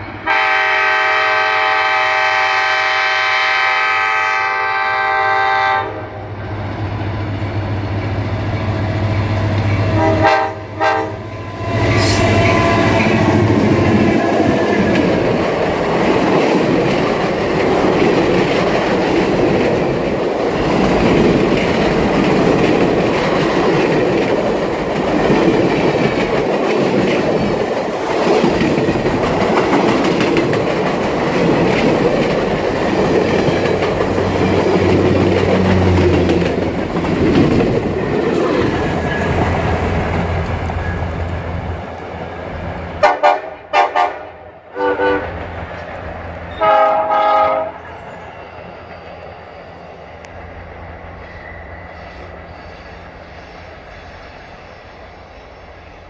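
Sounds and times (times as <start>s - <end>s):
locomotive horn blasts: 0.2s - 6.2s, 10.0s - 11.3s, 43.0s - 45.4s, 46.5s - 47.9s
train wheels clacking: 11.7s - 42.4s.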